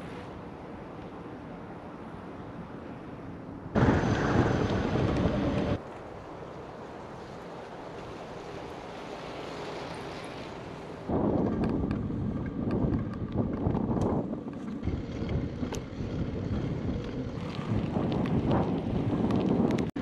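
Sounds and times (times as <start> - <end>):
outdoor background noise: 0.0 - 20.0
wind rushing over microphone: 3.7 - 5.8, 11.1 - 20.0.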